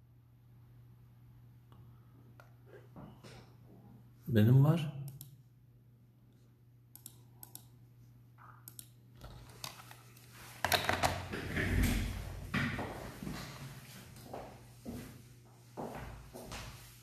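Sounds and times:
knocks and handling noise: 0:09.2 - 0:11.6.

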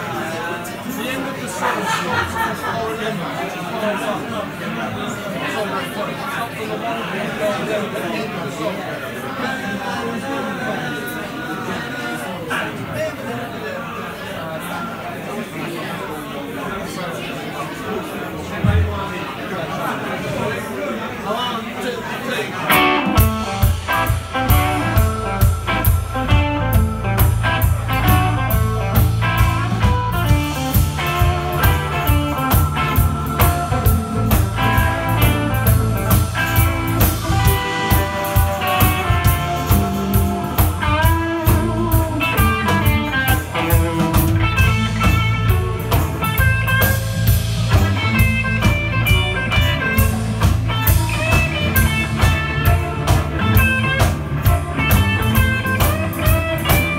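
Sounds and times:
bass guitar: 0:22.7 - 0:56.9
drum kit steady beat: 0:22.7 - 0:56.9
electric guitar lines: 0:22.7 - 0:56.9.

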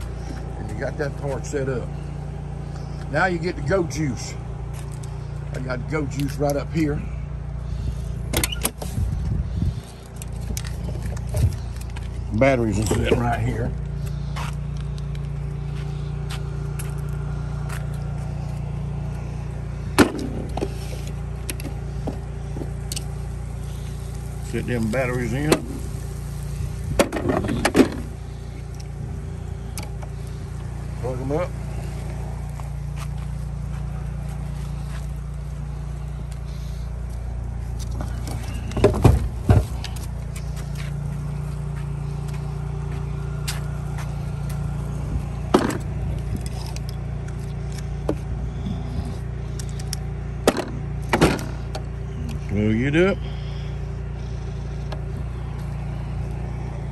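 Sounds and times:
engine idling: 0:00.0 - 0:56.9
low mechanical hum: 0:00.0 - 0:56.9
battery and cables clunking: 0:37.8 - 0:41.0.

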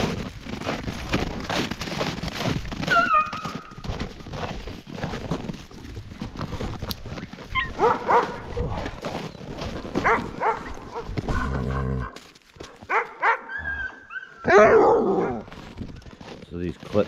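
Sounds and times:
dogs yelping and barking: 0:02.8 - 0:03.7, 0:07.4 - 0:09.0, 0:10.0 - 0:12.2, 0:12.9 - 0:15.5.

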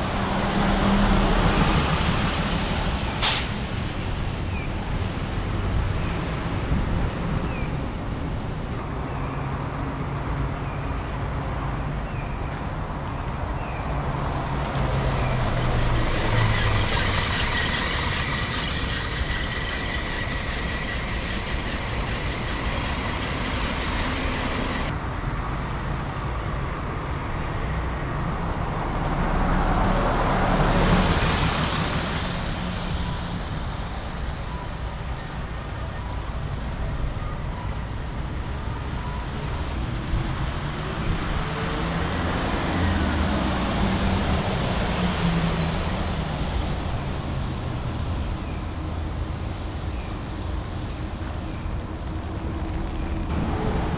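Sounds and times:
buses driving past: 0:00.0 - 0:53.9
tyres hissing on wet road: 0:00.4 - 0:04.3, 0:14.8 - 0:24.9.

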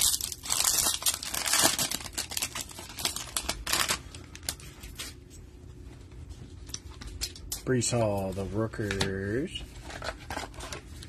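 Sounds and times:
plastic wrapper tearing and crinkling: 0:00.0 - 0:05.1.

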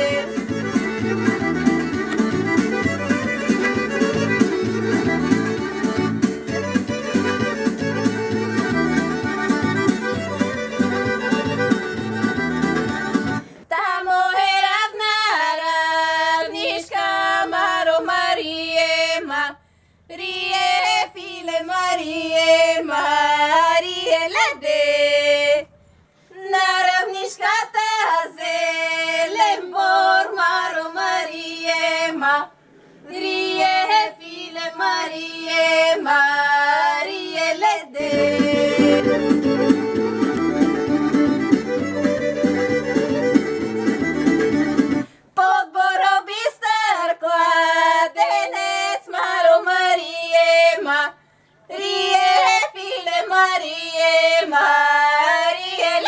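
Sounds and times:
women singing unaccompanied: 0:00.0 - 0:01.5, 0:13.7 - 0:39.8, 0:45.4 - 0:56.0
folk instrumental music: 0:00.0 - 0:13.7, 0:38.0 - 0:45.4.

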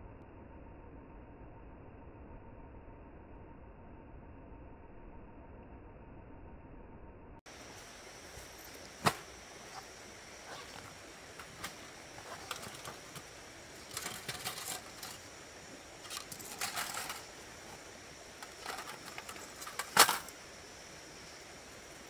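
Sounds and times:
faint high hum: 0:00.0 - 0:22.0
light clicks and clatter: 0:10.5 - 0:15.3, 0:16.0 - 0:17.8, 0:18.4 - 0:20.4.

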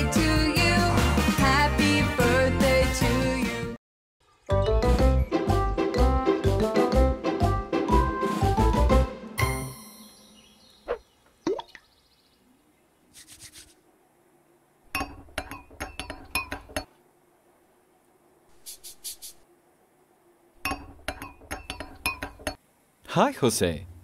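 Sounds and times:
glassware and dishes clinking: 0:14.9 - 0:16.9, 0:20.6 - 0:22.6.

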